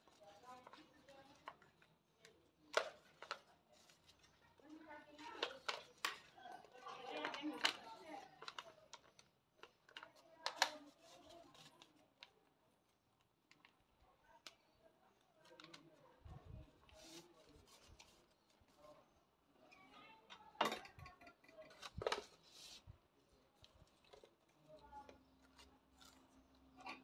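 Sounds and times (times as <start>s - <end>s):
stiff paper crinkling: 0.0s - 12.4s.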